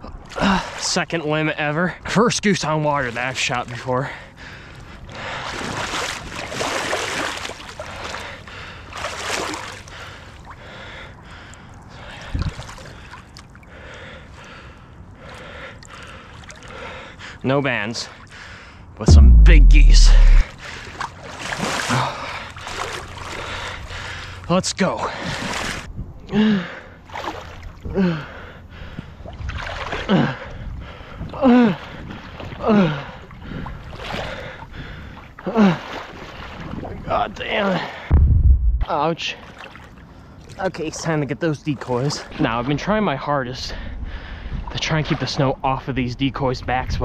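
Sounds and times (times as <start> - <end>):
water sloshing and splashing: 5.2 - 10.8, 15.4 - 17.0, 20.8 - 23.8, 29.2 - 30.1, 33.6 - 37.0, 39.4 - 40.6
dull low thump: 19.1 - 20.5, 38.1 - 38.9
low wind rumble on microphone: 38.1 - 38.9.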